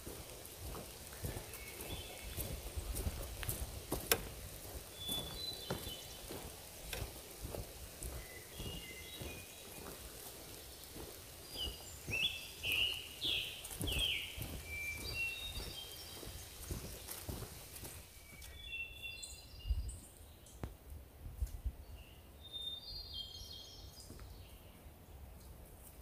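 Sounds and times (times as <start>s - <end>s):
footsteps on dirt trail: 0.0s - 19.5s
songbirds chirping: 0.0s - 26.0s.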